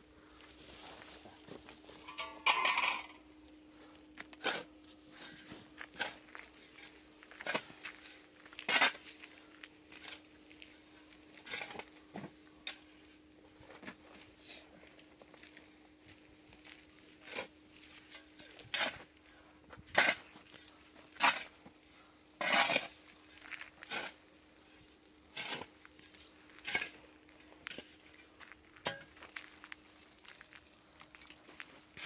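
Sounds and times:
faint steady hum: 0.0 - 32.0
knocks and clinks of handling: 2.0 - 3.2.

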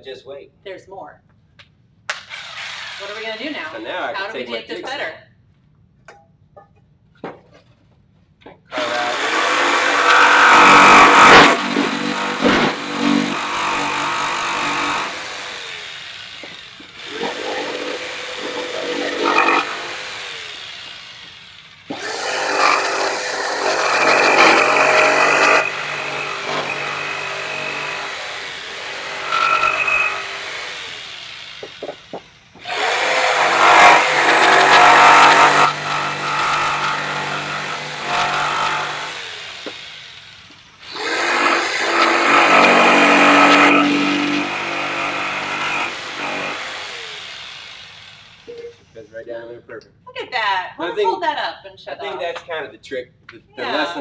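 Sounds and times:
jigsaw cutting wood: 2.2 - 4.2, 8.7 - 48.5.

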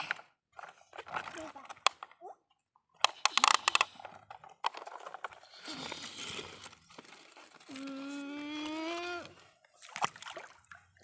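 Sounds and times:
plastic toys clicking and knocking: 0.0 - 6.0
toy truck scraping over dirt: 3.2 - 8.2.

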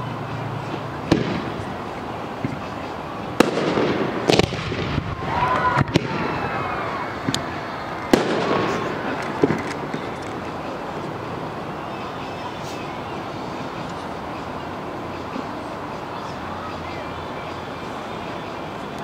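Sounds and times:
fireworks bangs: 0.6 - 12.9.

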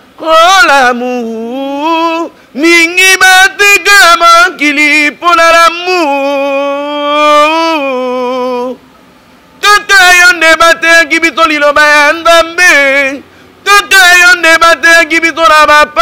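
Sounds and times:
man singing a cappella: 0.0 - 8.9, 9.6 - 16.0
singer breathing: 2.3 - 2.6, 13.2 - 13.6.

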